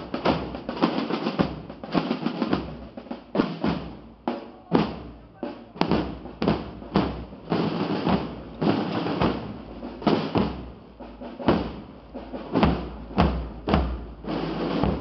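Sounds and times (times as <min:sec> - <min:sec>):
drum corps playing: 0:00.0 - 0:15.0.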